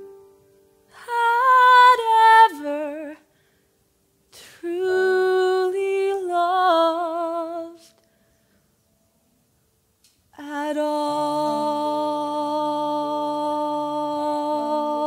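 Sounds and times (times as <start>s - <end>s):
woman singing a slow ballad: 0.9s - 3.3s, 4.4s - 7.9s, 10.4s - 15.0s.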